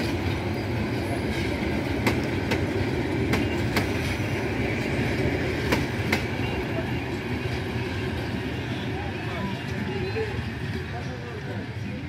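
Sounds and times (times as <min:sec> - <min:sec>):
wheels clacking over rail joints: 0:00.0 - 0:08.6
train coaches rumbling: 0:00.0 - 0:12.0.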